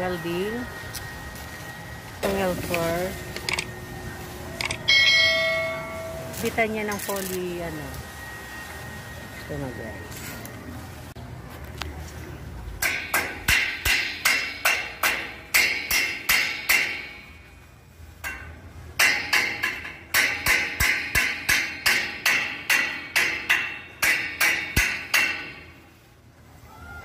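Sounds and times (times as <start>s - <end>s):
hammer striking steel tube: 12.8s - 17.5s, 18.2s - 25.9s.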